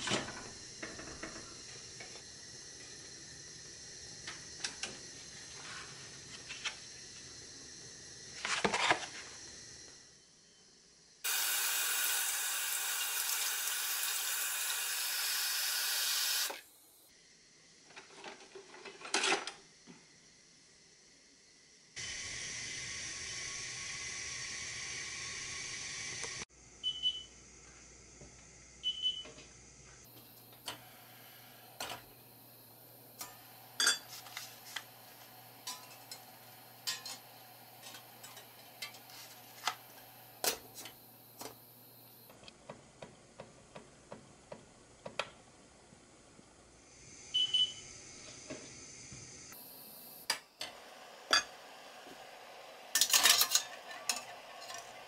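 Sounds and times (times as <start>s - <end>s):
water boiling and steaming: 11.2s - 16.7s, 22.0s - 26.5s, 30.1s - 41.6s, 49.5s - 55.0s.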